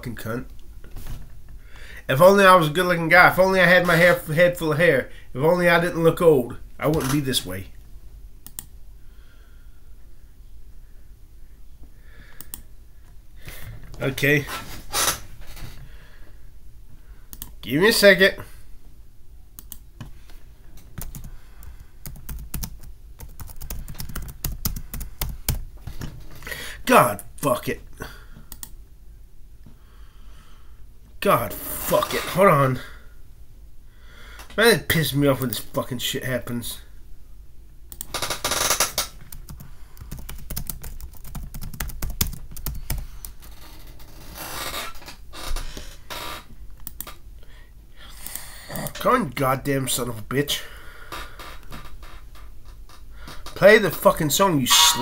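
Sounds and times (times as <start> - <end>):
typing on computer keyboard: 21.0 - 21.3, 22.0 - 25.6, 38.0 - 43.0.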